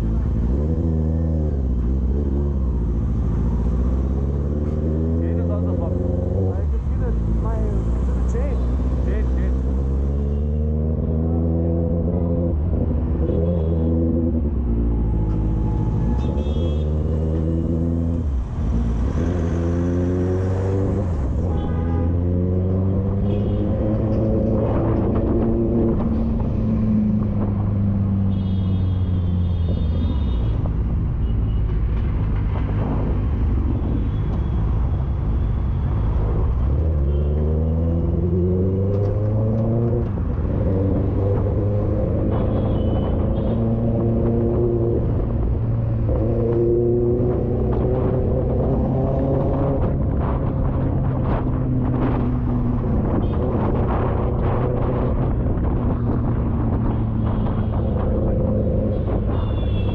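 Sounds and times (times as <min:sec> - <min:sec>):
road rumble: 0:00.0 - 0:59.9.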